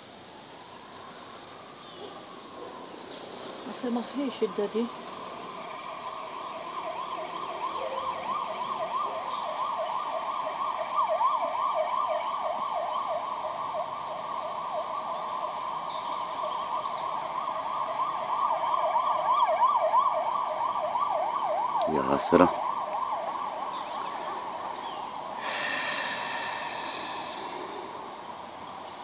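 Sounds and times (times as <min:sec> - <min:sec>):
emergency sirens yelping: 0:03.9 - 0:29.0.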